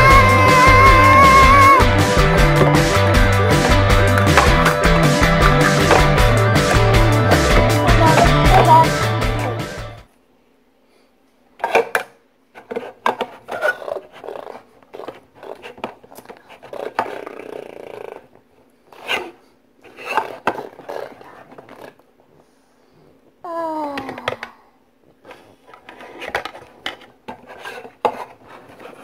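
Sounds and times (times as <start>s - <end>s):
plastic toys scraping and knocking: 11.6s - 18.3s, 18.9s - 22.0s, 25.2s - 29.0s.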